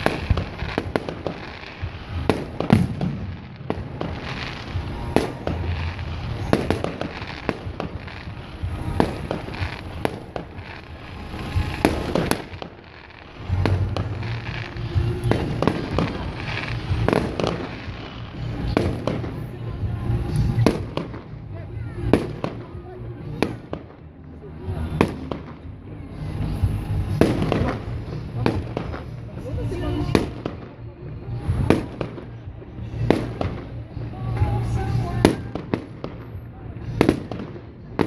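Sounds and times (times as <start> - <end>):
fireworks bangs and crackles: 0.0 - 38.0.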